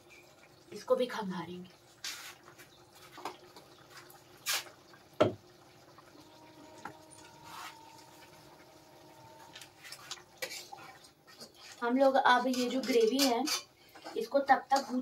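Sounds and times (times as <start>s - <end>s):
water trickling: 0.0s - 15.0s
water splashing: 6.2s - 11.9s.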